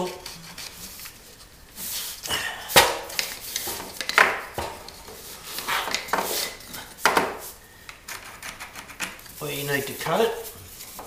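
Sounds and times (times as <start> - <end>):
flooring scraping on floor: 3.0 - 7.6.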